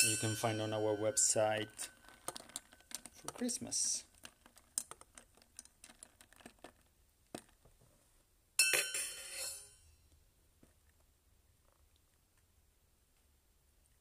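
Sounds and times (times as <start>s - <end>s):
metallic clink: 0.0s - 2.7s, 8.6s - 10.0s
spoon stirring ice in glass: 0.1s - 6.8s.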